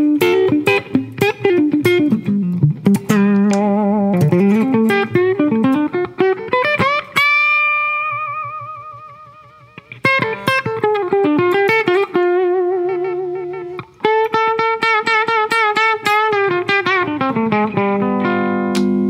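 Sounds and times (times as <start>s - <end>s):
clean electric guitar picking: 0.0s - 19.0s.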